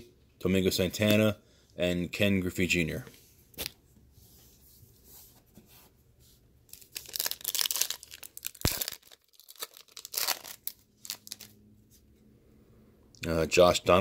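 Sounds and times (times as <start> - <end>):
foil wrapper tearing and crinkling: 6.7 - 11.6.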